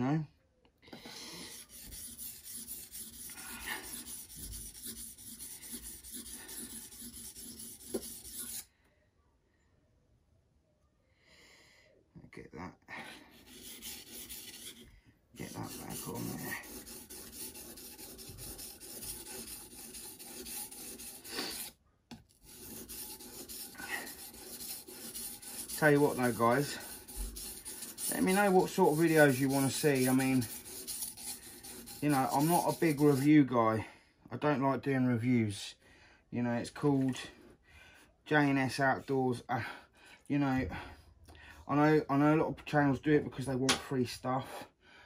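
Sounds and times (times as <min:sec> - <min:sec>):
knife blade rasping on whetstone: 0:01.5 - 0:08.7, 0:13.3 - 0:21.8, 0:22.4 - 0:33.3.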